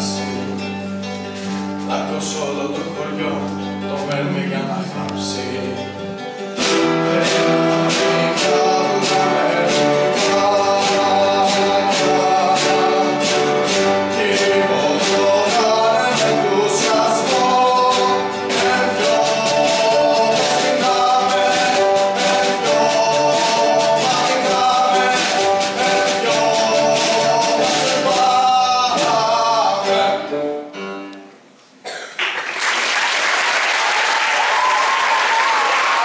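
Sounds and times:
man singing: 0.0 - 0.9, 1.9 - 30.6
orchestra playing: 0.1 - 30.9
audience applause: 32.2 - 36.0.

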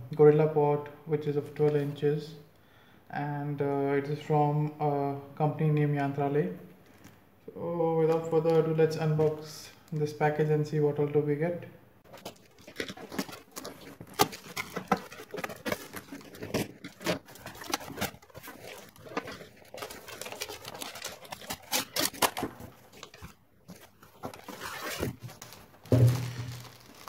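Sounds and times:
cardboard rustling and scraping: 12.0 - 27.0
packing tape ripping off cardboard: 12.1 - 27.0.

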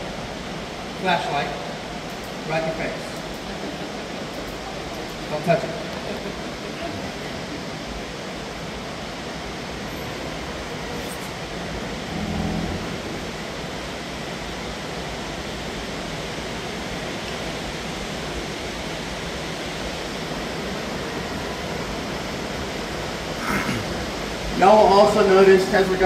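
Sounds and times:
boat rushing noise: 10.8 - 15.0
faint low hum: 11.8 - 13.9.

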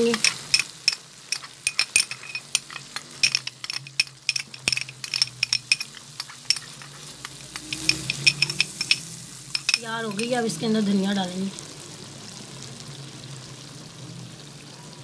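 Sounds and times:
spatula stirring: 0.0 - 10.4
chicken sizzling in oil: 0.0 - 15.0.

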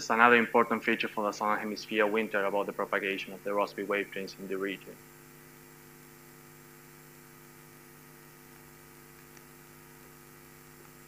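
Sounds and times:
electrical mains hum: 0.0 - 11.0
light hiss: 6.5 - 11.0.

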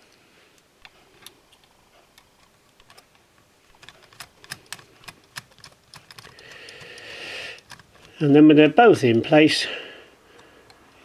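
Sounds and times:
small metal tools clicking: 3.7 - 8.2.

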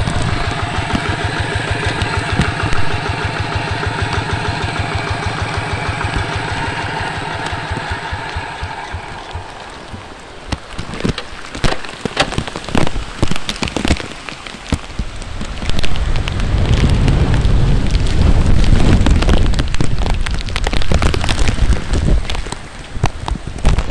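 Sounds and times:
loud low rumble: 0.0 - 11.6
heavy rain pouring: 0.0 - 23.9.

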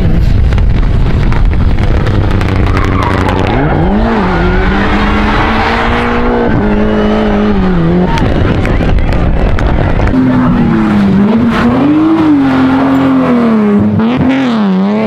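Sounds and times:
car engine at high revs: 0.0 - 15.0
tyres skidding and squealing: 2.0 - 15.0.

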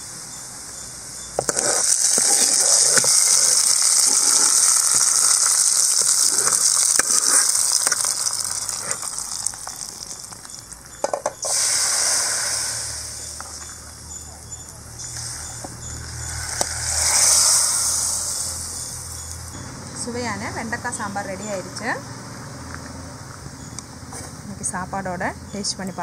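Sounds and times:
hot oil sizzling: 0.0 - 19.6
short sharp sizzle: 1.4 - 10.6, 11.4 - 19.6.

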